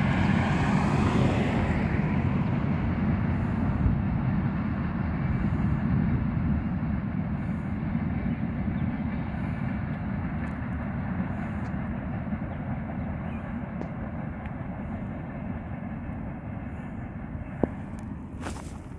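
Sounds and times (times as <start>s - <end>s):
freight train wheels rumbling on rail: 0.0s - 18.9s.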